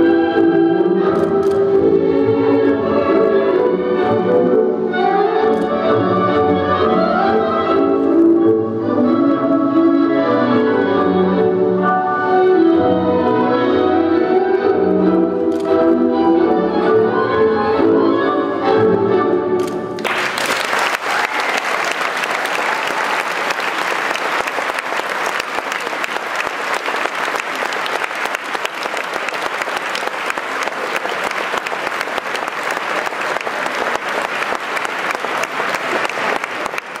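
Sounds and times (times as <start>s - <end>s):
tango music: 0.0s - 20.1s, 23.4s - 37.0s
audience applause: 20.0s - 37.0s.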